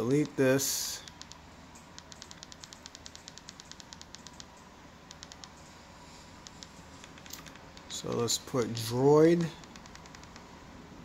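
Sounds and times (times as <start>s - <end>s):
remote button clicking: 2.0s - 4.5s, 5.1s - 5.6s, 9.6s - 10.5s.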